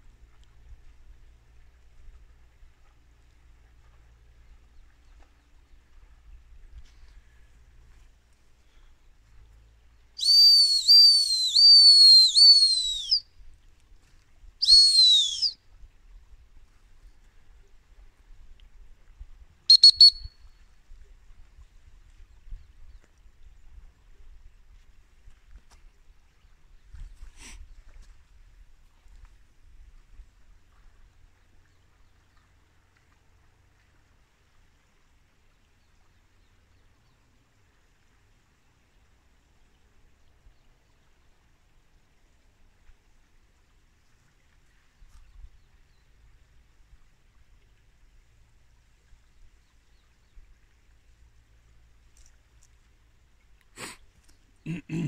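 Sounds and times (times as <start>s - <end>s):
dog whistle blasts: 10.2s - 13.2s, 14.6s - 15.6s, 19.7s - 20.4s.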